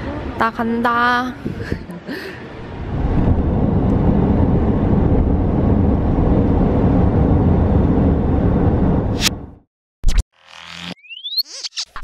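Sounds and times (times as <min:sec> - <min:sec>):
car cabin road and engine rumble: 0:01.6 - 0:09.1.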